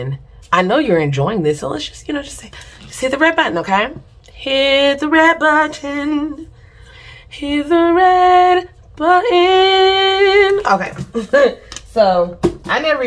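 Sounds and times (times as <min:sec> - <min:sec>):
woman singing: 0:02.1 - 0:06.6, 0:07.2 - 0:11.4.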